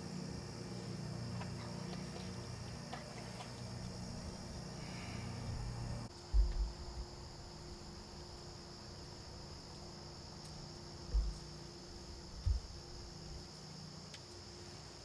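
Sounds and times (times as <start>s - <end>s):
insects and crickets trilling: 0.0s - 15.0s
dull low thumps: 5.5s - 7.0s, 11.1s - 11.4s, 12.4s - 12.8s.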